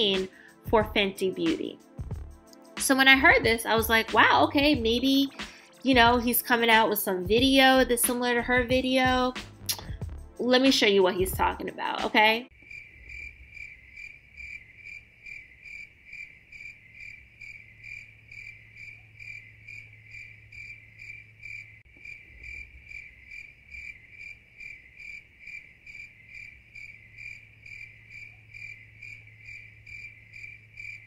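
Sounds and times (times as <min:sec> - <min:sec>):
cricket chirping: 0:12.5 - 0:31.0.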